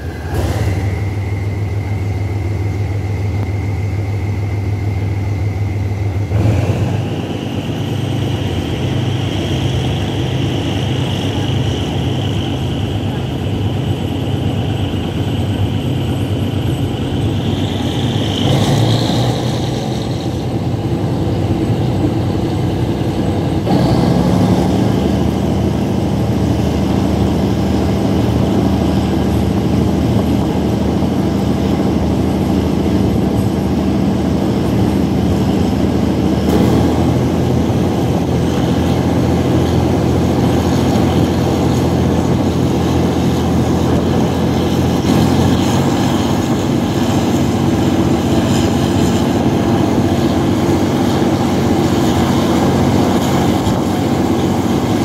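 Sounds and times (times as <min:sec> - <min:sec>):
locomotive engine running: 0:00.0 - 0:55.0.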